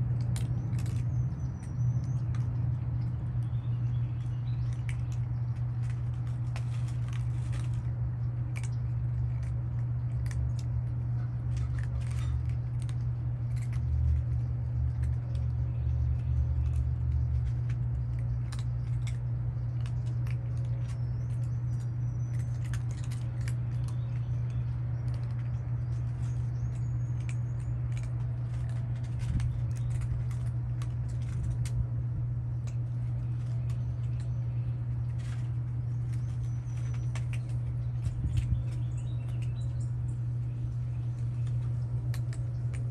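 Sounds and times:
cats chewing wet food: 0.0s - 42.9s
steady low hum: 0.0s - 42.9s.

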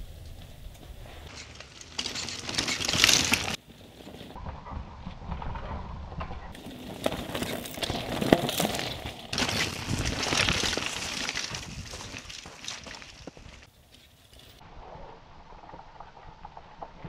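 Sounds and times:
bike clicks and knocks: 0.2s - 4.4s, 6.2s - 14.6s
tyres crunching on gravel: 1.3s - 4.4s, 6.6s - 14.6s.

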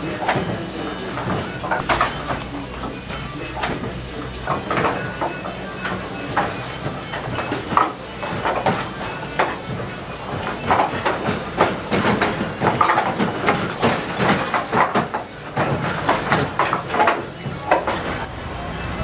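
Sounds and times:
wooden gears clacking and knocking: 10.3s - 18.3s.

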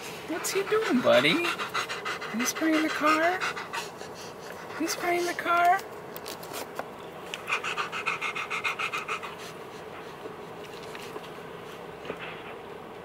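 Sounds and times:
dog panting quickly: 0.3s - 5.8s, 7.5s - 11.2s.

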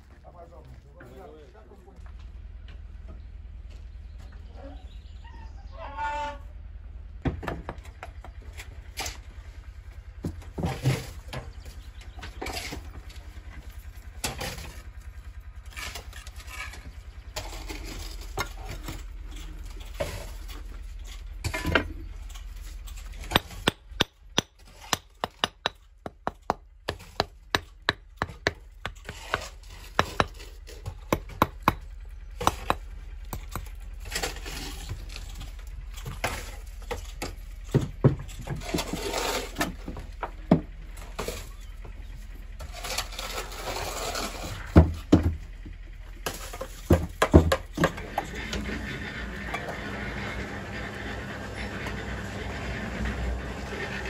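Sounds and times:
hammer tapping on stones: 23.3s - 33.7s.

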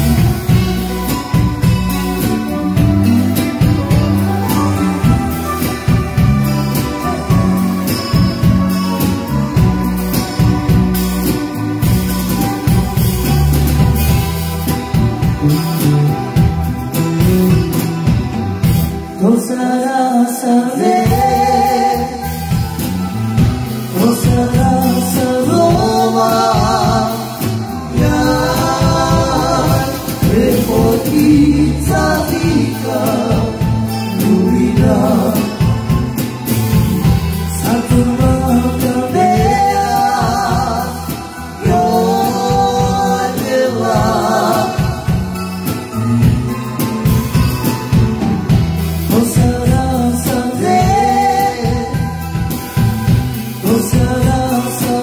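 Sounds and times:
live rock band playing: 0.0s - 55.0s
man singing: 19.1s - 22.7s, 23.8s - 36.2s, 37.5s - 45.4s, 49.0s - 55.0s.

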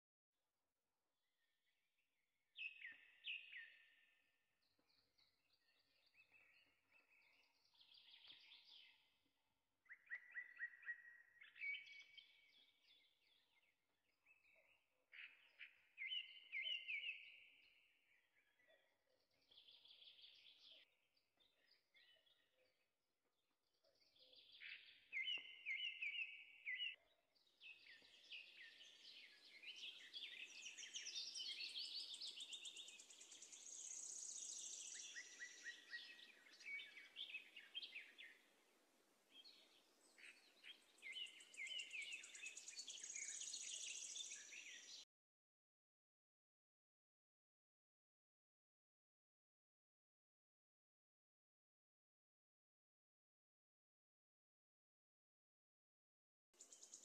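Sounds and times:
birds chirping: 24.0s - 38.5s, 39.3s - 45.0s.

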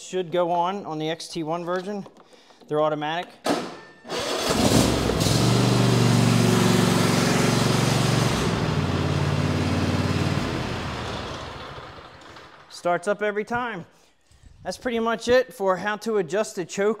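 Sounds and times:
lawn tractor engine running: 4.1s - 12.8s.

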